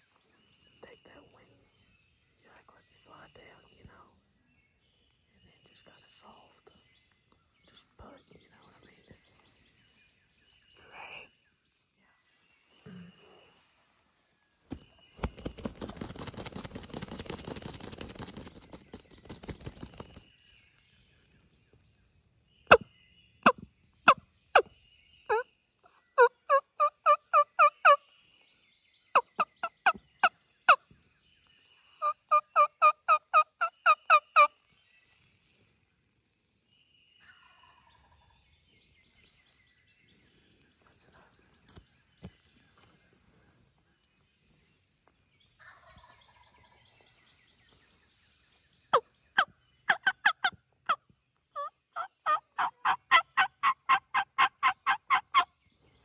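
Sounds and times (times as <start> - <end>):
turkey call yelping: 51.6 - 55.4.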